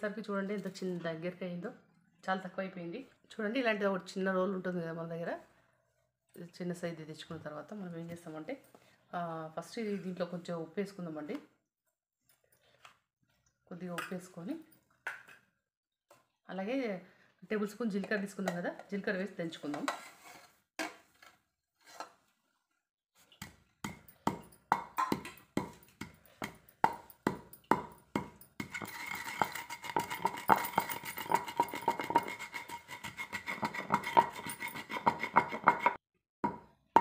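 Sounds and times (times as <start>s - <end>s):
pestle pounding in stone mortar: 23.4s - 37.0s.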